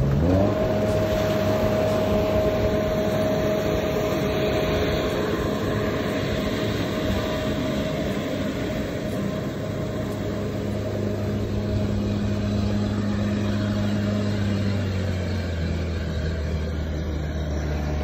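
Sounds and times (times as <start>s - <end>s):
tyres churning through water: 0.0s - 15.8s
diesel engine running: 0.0s - 18.0s.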